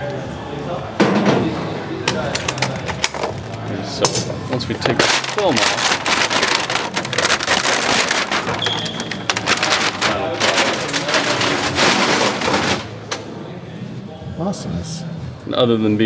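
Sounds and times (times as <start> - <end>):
plastic film crackling and crinkling: 2.4 - 4.0, 4.6 - 13.1.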